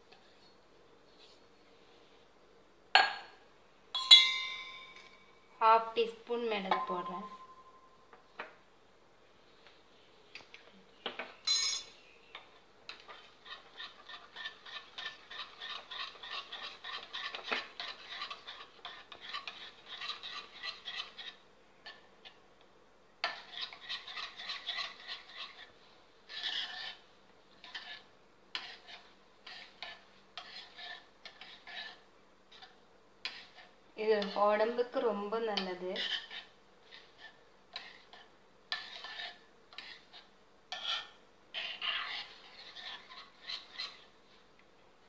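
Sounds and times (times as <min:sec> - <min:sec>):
metal spoon stirring in bowl: 0:04.0 - 0:05.3, 0:11.5 - 0:22.4, 0:23.2 - 0:44.2.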